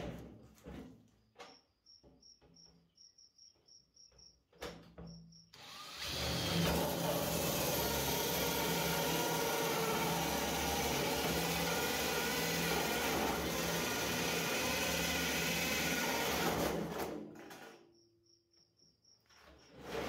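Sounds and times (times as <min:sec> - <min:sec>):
drill hole saw grinding through metal: 0:05.6 - 0:16.9.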